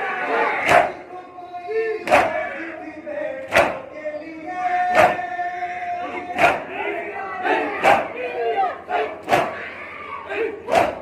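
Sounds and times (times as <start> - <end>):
crowd slapping chests in unison: 0.0 - 1.1, 2.0 - 2.7, 3.4 - 4.0, 4.9 - 5.3, 6.1 - 11.0
crowd chanting: 0.0 - 11.0.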